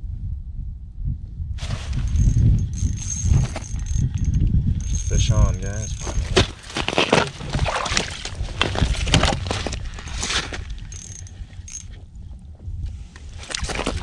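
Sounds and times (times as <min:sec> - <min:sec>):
wind on microphone: 0:00.0 - 0:14.0
fishing reel clicking: 0:10.9 - 0:11.9.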